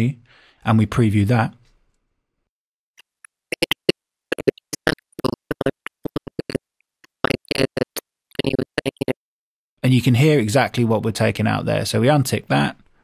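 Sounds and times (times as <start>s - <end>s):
mouth clicks and lip smacks: 3.0s - 9.2s.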